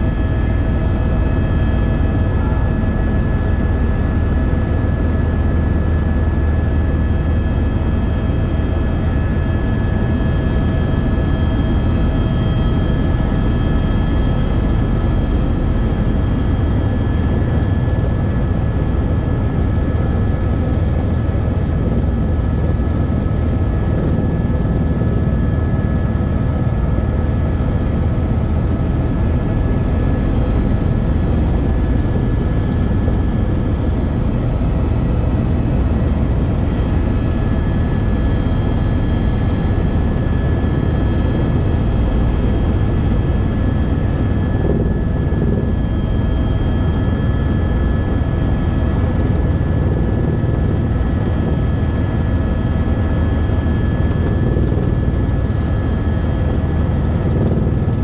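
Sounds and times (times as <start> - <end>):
helicopter rotor and engine rumble: 0.0 - 58.0.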